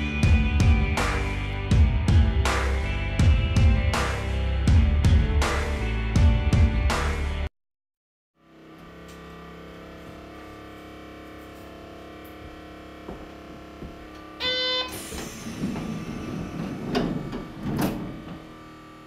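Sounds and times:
streetcar interior hum: 0:08.8 - 0:19.0
buzzer: 0:14.4 - 0:15.0
rumbling: 0:15.2 - 0:18.6.

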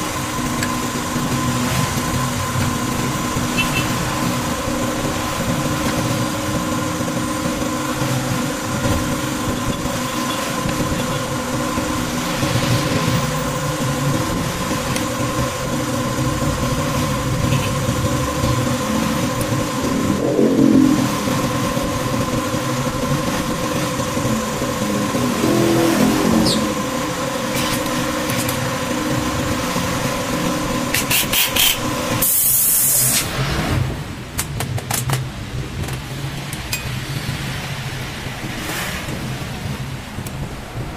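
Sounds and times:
machine hum with tones: 0:00.0 - 0:34.0
impact wrench bursts: 0:30.9 - 0:33.2.

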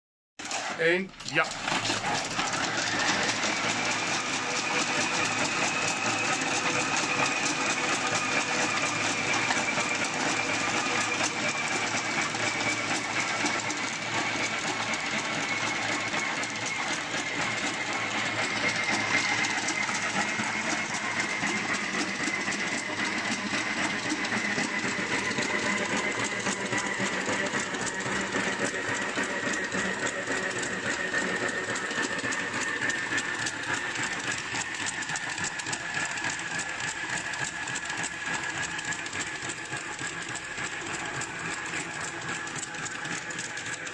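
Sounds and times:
clatter of treadmill slats: 0:18.6 - 0:43.9.

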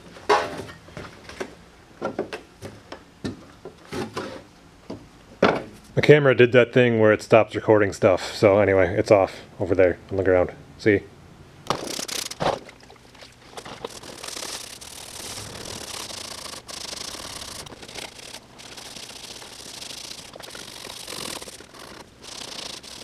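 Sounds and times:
scouring pad scrubbing metal: 0:13.5 - 0:23.0.

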